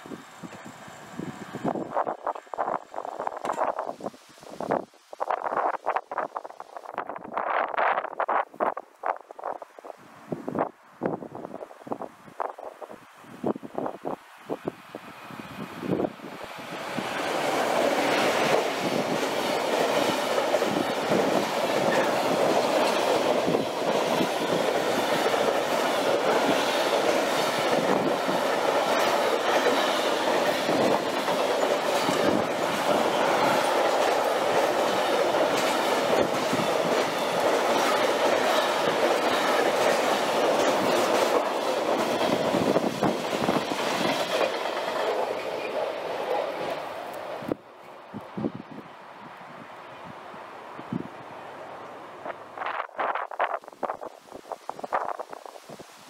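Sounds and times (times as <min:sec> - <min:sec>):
train passing: 0:00.0 - 0:56.0
wheels clattering over rail joints: 0:16.5 - 0:47.6.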